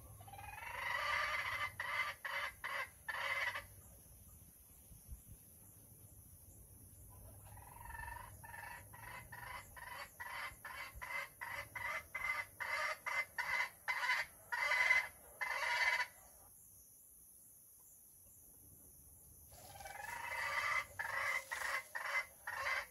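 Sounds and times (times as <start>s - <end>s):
hen cackling: 0.0s - 3.7s, 7.2s - 16.1s, 19.5s - 22.9s.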